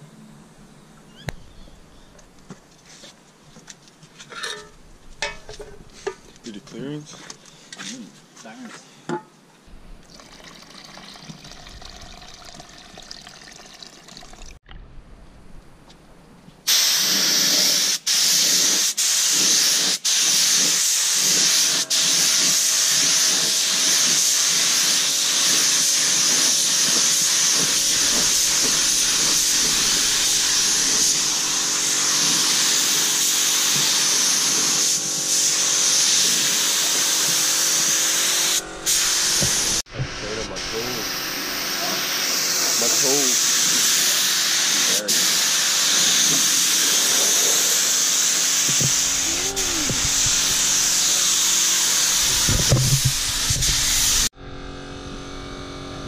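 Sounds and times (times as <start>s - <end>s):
spray gun hissing: 16.7s - 39.9s, 40.5s - 54.3s.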